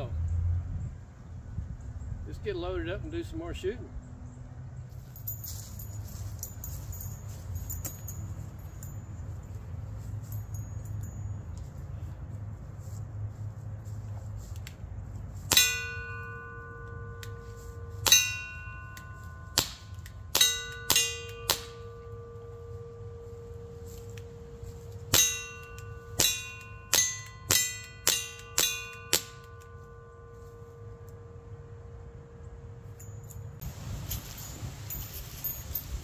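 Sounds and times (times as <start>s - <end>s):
steel target clanging: 15.5s - 31.4s.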